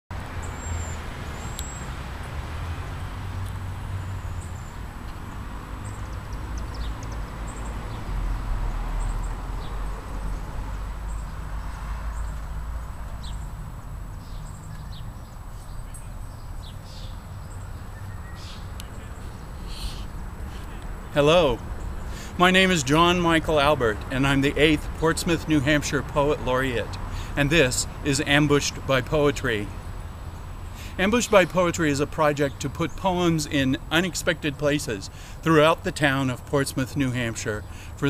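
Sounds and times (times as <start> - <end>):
high bird chirps: 14.2 - 20.1.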